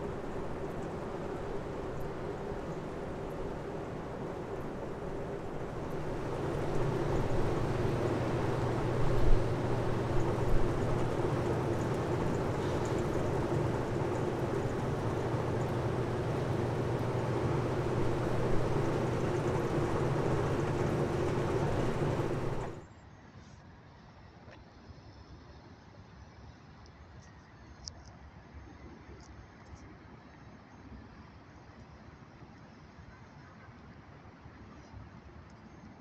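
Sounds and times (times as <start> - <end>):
low mechanical drone: 0.0 - 22.8.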